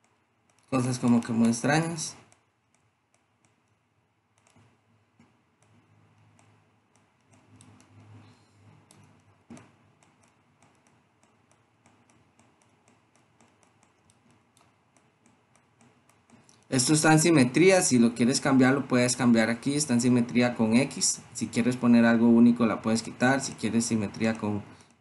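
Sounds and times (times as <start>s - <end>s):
computer mouse and keyboard clicks: 0.0s - 16.7s.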